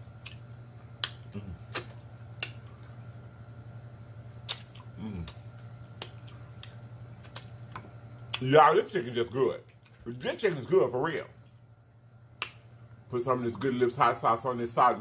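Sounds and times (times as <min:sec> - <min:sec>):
steady low hum: 0:00.0 - 0:15.0
wet lip smacks: 0:01.0 - 0:02.7, 0:04.4 - 0:08.4
person humming: 0:01.3 - 0:01.8, 0:05.0 - 0:05.4.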